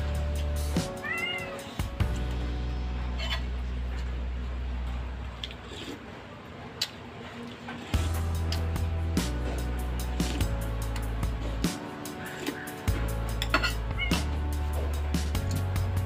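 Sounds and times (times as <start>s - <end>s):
background music with low bass: 0.0s - 5.2s, 8.0s - 16.0s
cat meowing: 1.0s - 1.8s.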